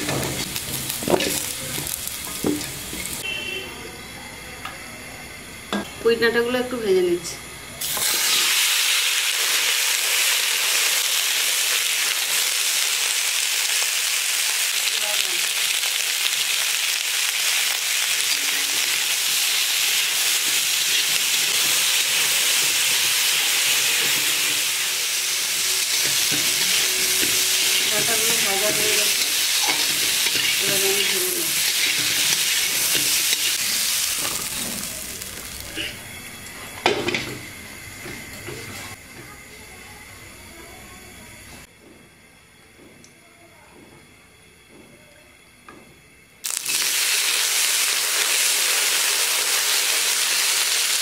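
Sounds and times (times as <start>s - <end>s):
vegetables sizzling in hot oil: 0.0s - 3.4s, 7.8s - 39.0s, 46.4s - 51.0s.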